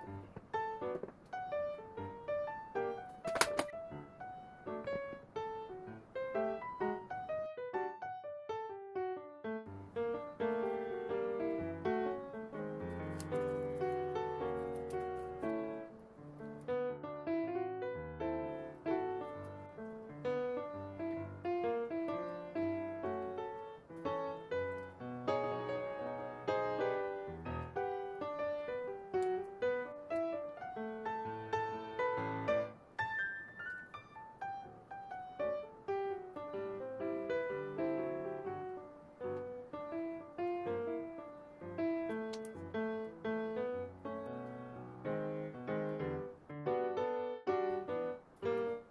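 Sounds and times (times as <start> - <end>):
gentle piano tune: 0.0 - 48.9.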